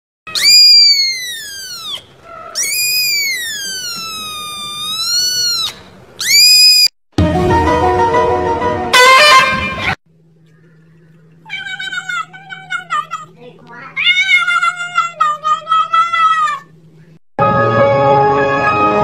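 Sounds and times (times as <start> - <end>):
kitten meowing: 0.3 - 6.9, 11.5 - 16.7
music with held tones: 17.4 - 19.0.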